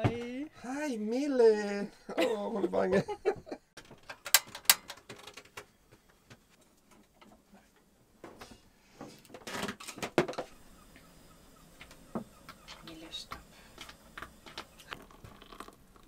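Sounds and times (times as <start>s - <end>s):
small objects clicking and knocking: 3.8s - 5.7s, 11.8s - 16.0s.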